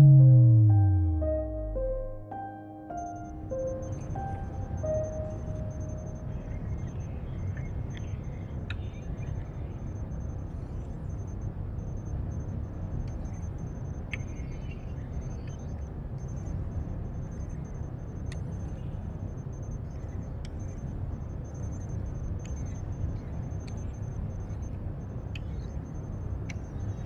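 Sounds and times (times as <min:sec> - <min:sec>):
low machine hum: 0:00.0 - 0:11.6
faint high whine: 0:00.0 - 0:27.0.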